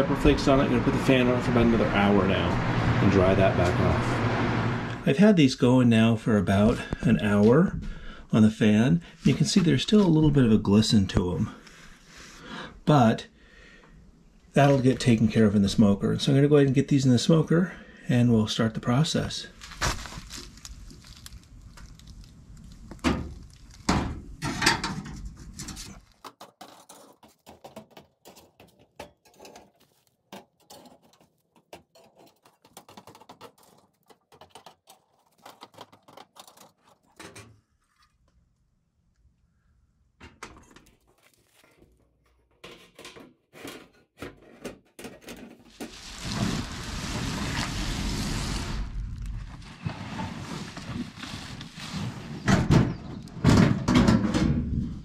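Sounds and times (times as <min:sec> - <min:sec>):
metal racks knocking and scraping: 0:23.0 - 0:37.6, 0:41.7 - 0:47.5, 0:51.8 - 0:55.0.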